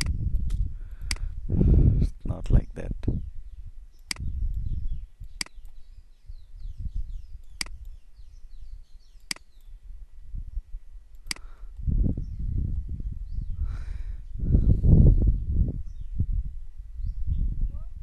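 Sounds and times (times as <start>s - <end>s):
low room rumble: 0.0s - 7.4s
faint bird chirps: 3.2s - 10.7s
computer mouse clicks: 5.2s - 5.8s, 11.2s - 11.5s.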